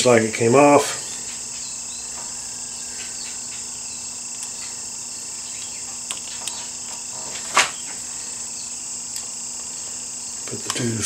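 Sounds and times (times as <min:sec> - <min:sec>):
high insect chirring: 0:00.0 - 0:11.0.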